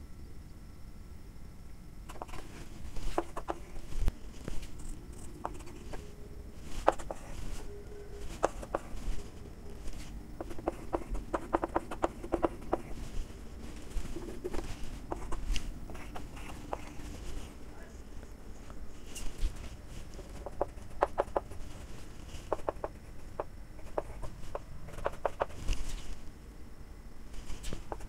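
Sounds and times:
chalk writing on blackboard: 2.1s - 3.9s, 4.8s - 17.6s, 20.0s - 25.7s.

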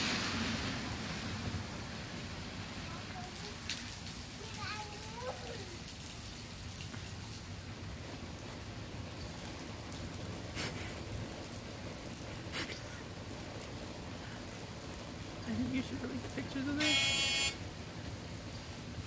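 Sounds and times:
steady rain falling: 0.0s - 19.0s.

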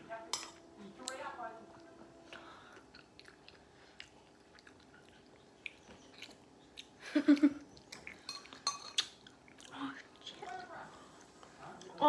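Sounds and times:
faint chewing: 0.5s - 12.0s.

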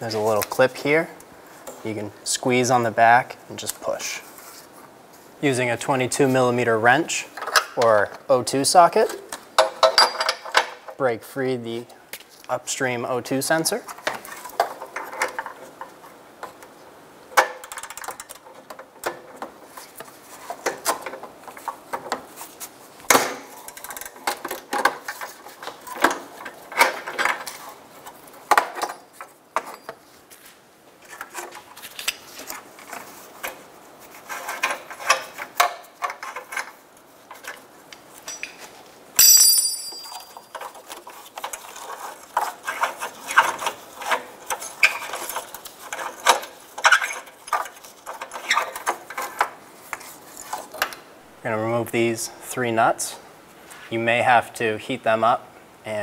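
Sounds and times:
loud ringing metallic clink: 39.2s - 40.5s.

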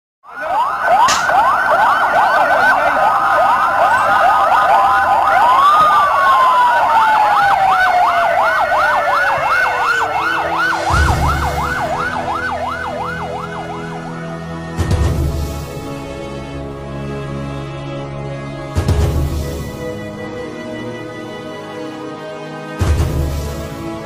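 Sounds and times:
siren wail sliding downward: 0.2s - 14.6s
emergency sirens yelping: 0.2s - 22.8s
low music: 1.0s - 24.0s.

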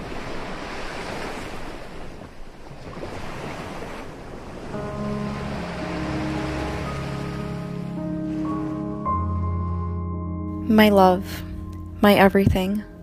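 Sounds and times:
wind: 0.0s - 9.4s
ocean surf rushing: 0.0s - 9.9s
music: 4.8s - 13.0s.

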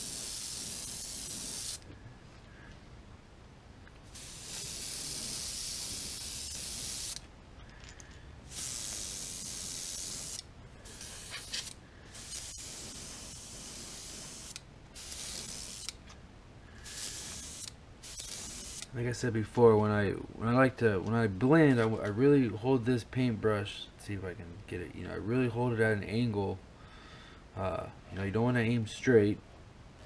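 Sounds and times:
airbrush spraying hiss: 0.0s - 1.9s, 4.1s - 7.3s, 8.4s - 16.0s, 16.8s - 18.9s.

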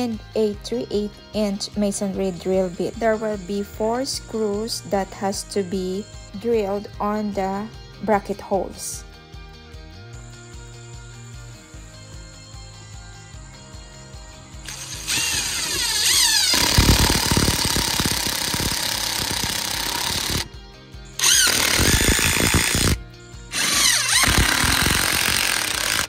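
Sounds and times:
motor whine: 10.2s - 26.0s
impact driver driving screws: 14.7s - 20.5s, 21.2s - 26.0s.

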